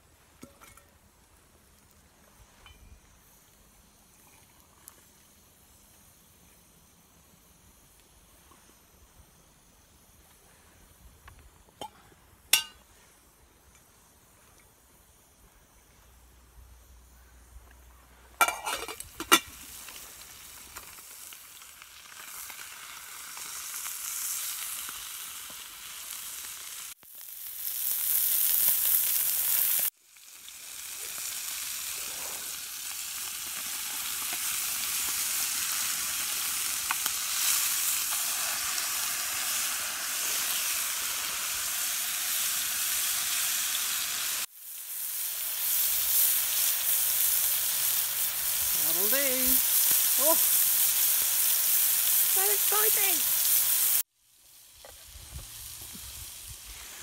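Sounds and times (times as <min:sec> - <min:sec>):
meat sizzling in a frying pan: 0:18.4 - 0:57.0.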